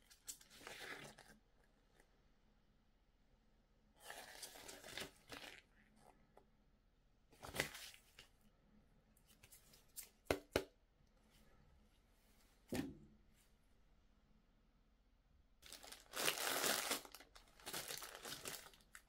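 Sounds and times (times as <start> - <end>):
packaging crinkling: 15.6 - 19.0.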